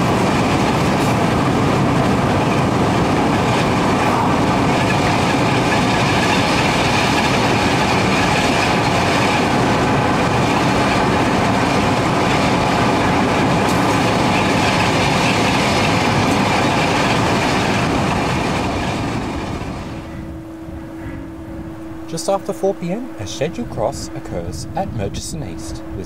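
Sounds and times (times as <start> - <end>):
train wheels on rails: 0.0 - 20.1
diesel locomotive engines: 0.0 - 26.0.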